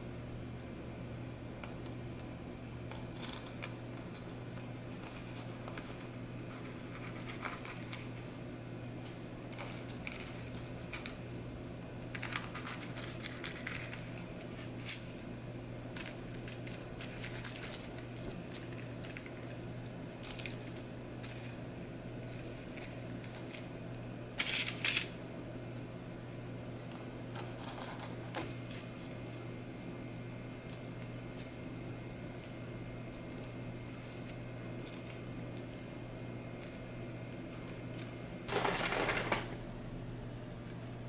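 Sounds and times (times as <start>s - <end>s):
puff pastry crackling: 12.1s - 15.2s, 15.8s - 23.8s.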